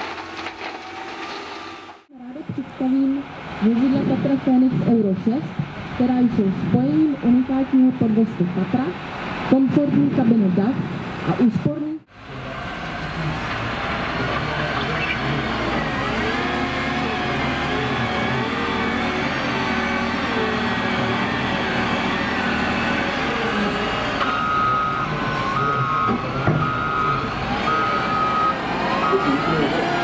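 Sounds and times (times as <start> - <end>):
diesel engine working under load: 0.0 - 30.0
reversing alarm beeping: 19.8 - 30.0.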